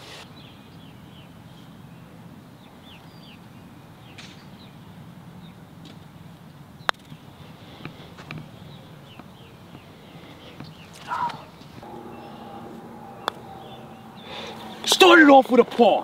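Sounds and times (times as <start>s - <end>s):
putter striking golf ball: 11.8s - 15.2s
birds chirping: 11.8s - 16.0s.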